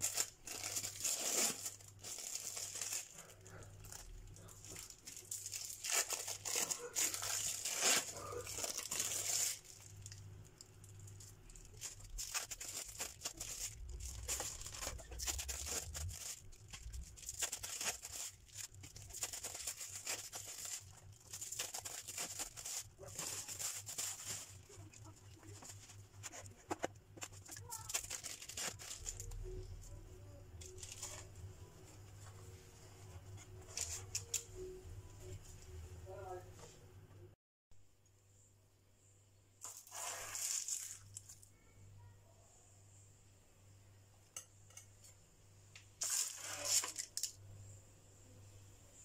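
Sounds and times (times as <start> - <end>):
plastic film crinkling and tearing: 0.0 - 30.0, 30.6 - 31.4, 33.4 - 34.5, 39.6 - 41.5, 46.0 - 47.4.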